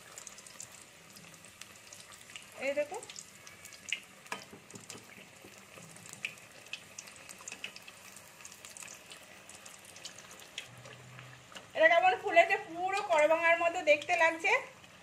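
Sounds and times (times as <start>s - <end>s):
oil trickling back into pan: 0.0s - 11.8s
hot oil sizzling and crackling: 0.0s - 15.0s.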